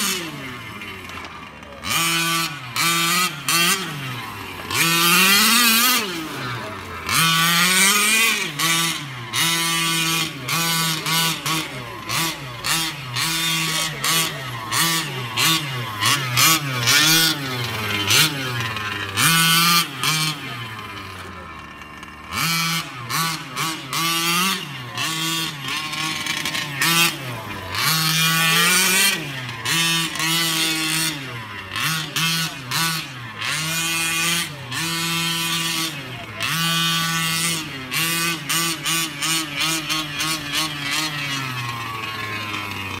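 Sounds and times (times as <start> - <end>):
two-stroke engine revving: 0.0 - 43.0.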